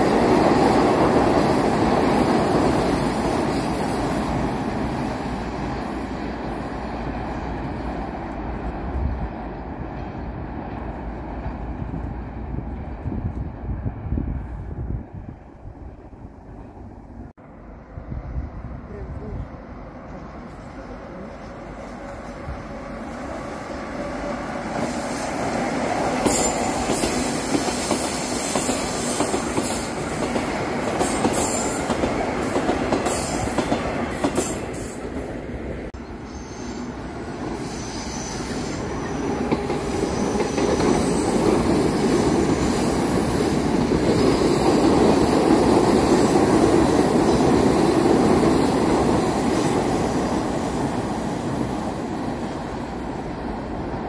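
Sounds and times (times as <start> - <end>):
train rumbling past: 0.0 - 54.0
train wheel squeal: 17.6 - 30.3, 30.9 - 33.6, 36.0 - 45.3.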